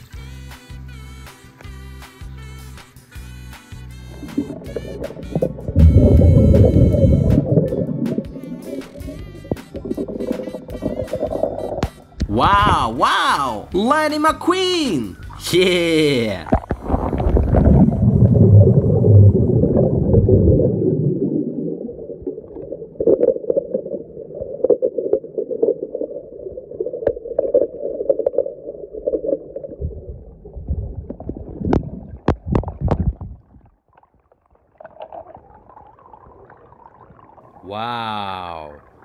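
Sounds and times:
muffled underwater rumble and gurgling: 0:04.3 - 0:11.8, 0:16.4 - 0:33.8.

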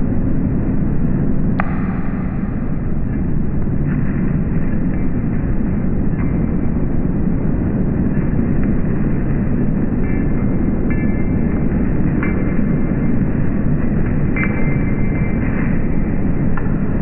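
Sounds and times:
deep rumbling noise: 0:01.6 - 0:06.1.

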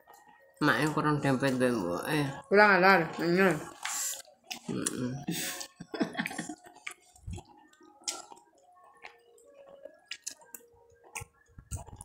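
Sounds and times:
wet chewing and lip smacks: 0:05.6 - 0:12.0.

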